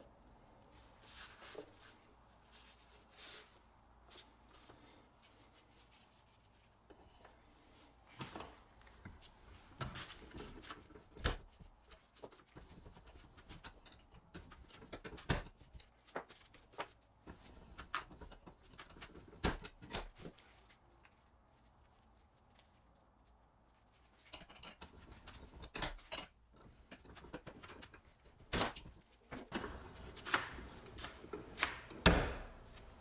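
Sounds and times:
small metal clicks and knocks: 13.4s - 16.0s, 24.2s - 28.9s.

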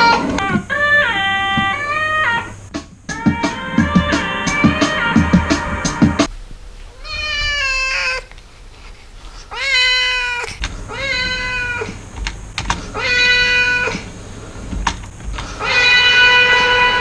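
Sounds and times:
cat meowing: 0.0s - 5.2s, 6.9s - 8.3s, 9.5s - 12.0s, 12.9s - 14.0s, 15.6s - 17.0s.

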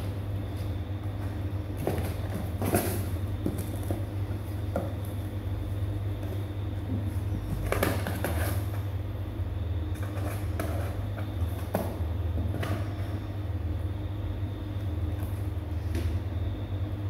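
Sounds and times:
steady low hum: 0.0s - 17.0s
kittens scratching cardboard box: 0.6s - 5.3s, 6.2s - 8.9s, 9.9s - 13.2s.

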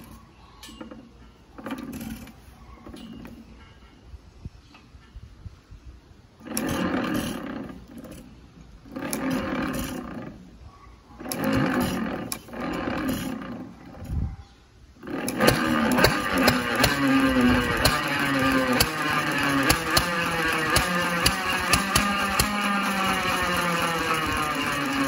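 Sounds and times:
gas engine firing and running: 15.0s - 25.0s.

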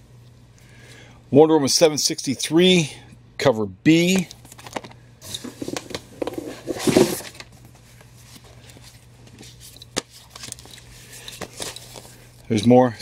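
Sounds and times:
faint electrical hum: 0.0s - 13.0s
comics and cardboard box rustling: 5.5s - 7.4s.

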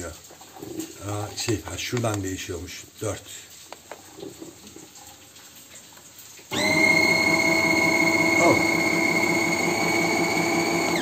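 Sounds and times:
coffee grinder motor whine: 6.5s - 11.0s.

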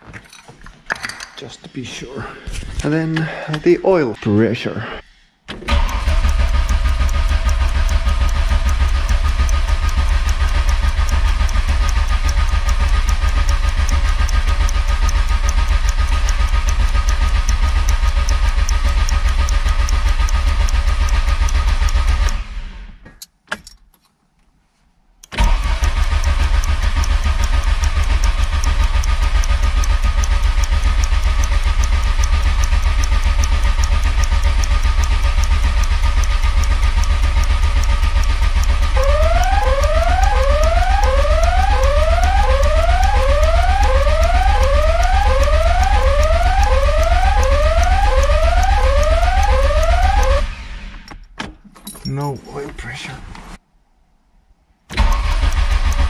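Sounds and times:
click: 5.5s - 22.4s, 23.1s - 24.1s, 25.2s - 50.4s, 54.9s - 56.0s
starter motor cranking engine: 5.5s - 23.0s, 25.2s - 51.2s, 54.9s - 56.0s.

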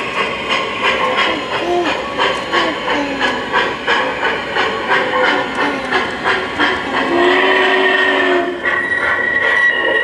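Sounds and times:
steam locomotive chuffing: 0.0s - 10.0s
steam whistle: 6.6s - 10.0s.

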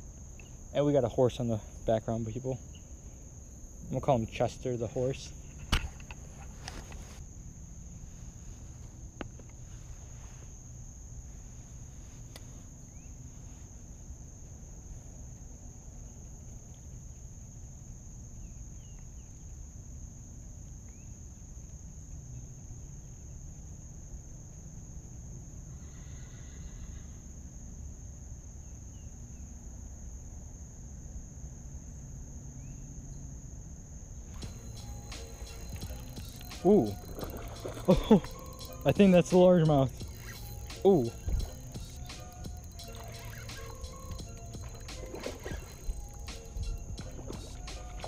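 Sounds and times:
insects droning: 0.0s - 48.0s
faint short chirps: 39.9s - 46.1s.

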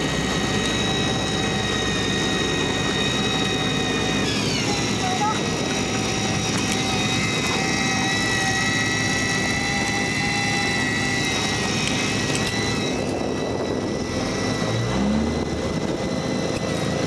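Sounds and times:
boat machine drone: 0.0s - 17.0s
high whine: 0.0s - 17.0s
low rising note: 13.2s - 16.4s.

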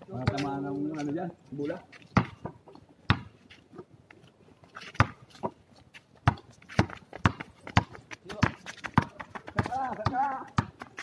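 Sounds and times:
basketball bouncing on concrete: 0.1s - 1.2s, 2.1s - 3.4s, 5.0s - 5.6s, 6.2s - 11.0s.

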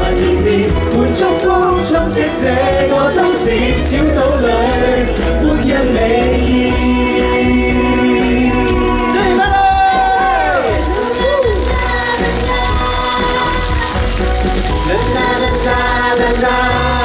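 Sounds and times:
backing track: 0.0s - 17.0s
man and woman singing: 0.0s - 17.0s.

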